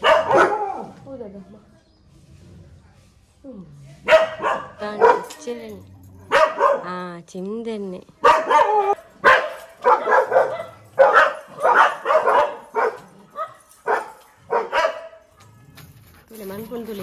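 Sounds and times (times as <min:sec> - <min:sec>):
dog barking: 0:00.0 - 0:01.0, 0:04.0 - 0:05.4, 0:06.3 - 0:07.0, 0:08.2 - 0:15.3.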